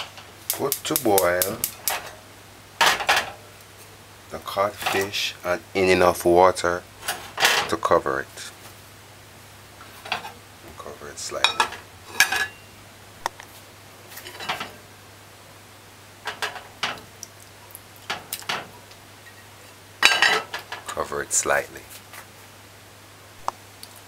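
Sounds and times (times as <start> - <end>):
faint steady hum: 0.0 - 24.0
pot and plate clinking: 11.4 - 12.7, 19.3 - 20.8.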